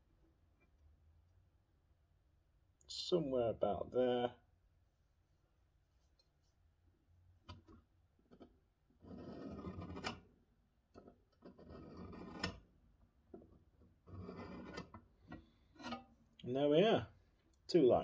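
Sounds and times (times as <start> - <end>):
steel tool scratching steel plate: 9.0 - 10.2, 11.0 - 12.6, 14.0 - 15.0, 15.8 - 16.1.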